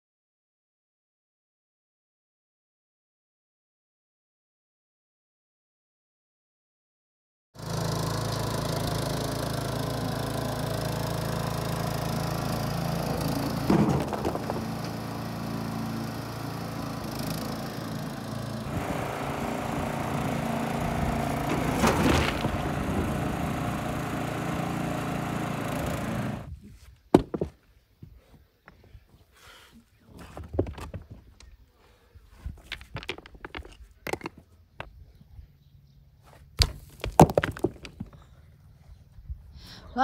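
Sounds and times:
small engine running: 0:07.6 - 0:26.5
stones rattling and clattering: 0:13.6 - 0:14.7, 0:32.5 - 0:34.5, 0:36.6 - 0:38.2.

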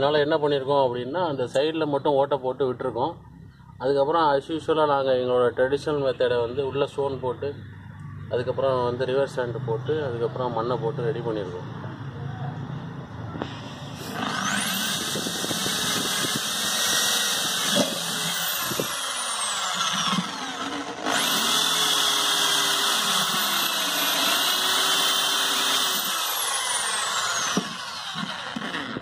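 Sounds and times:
power drill boring into metal drum: 0:13.4 - 0:29.0.

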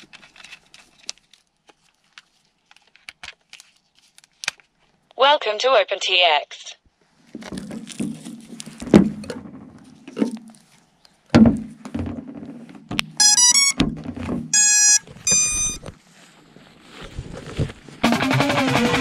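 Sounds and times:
handling knocks and rustling: 0:07.2 - 0:13.2, 0:13.8 - 0:18.0
drone motor start-up beeps: 0:13.2 - 0:13.8, 0:14.6 - 0:15.8.

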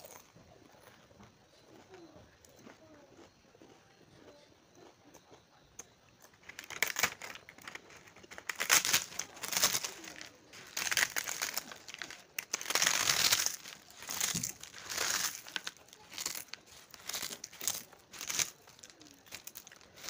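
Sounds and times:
crispy fried food crackling: 0:06.2 - 0:20.0.

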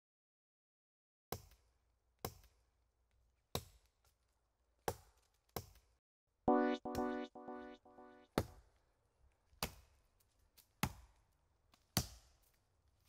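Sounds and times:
musical chord: 0:06.5 - 0:08.2.

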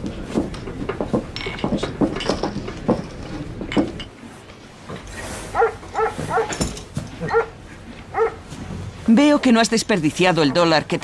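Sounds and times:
dog barking in sharp yaps: 0:05.5 - 0:06.5, 0:07.3 - 0:07.5, 0:08.1 - 0:08.4.

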